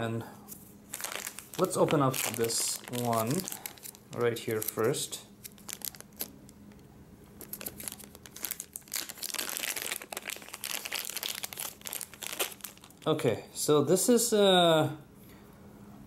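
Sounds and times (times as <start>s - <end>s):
plastic bag crinkling: 0.9s - 6.6s, 7.4s - 13.1s.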